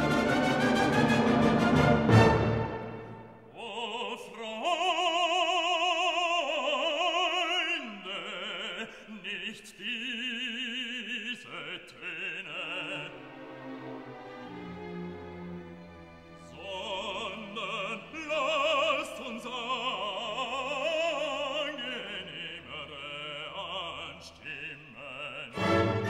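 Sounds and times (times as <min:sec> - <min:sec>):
orchestral music with brass: 0:00.0 - 0:03.5, 0:13.0 - 0:16.9, 0:25.5 - 0:26.0
operatic voice singing: 0:03.5 - 0:13.6, 0:16.4 - 0:26.0.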